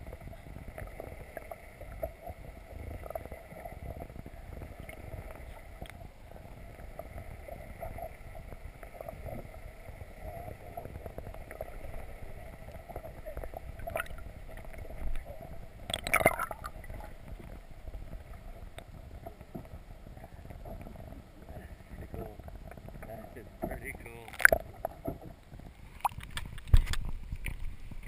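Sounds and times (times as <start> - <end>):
muffled underwater rumble: 0.0 - 28.0.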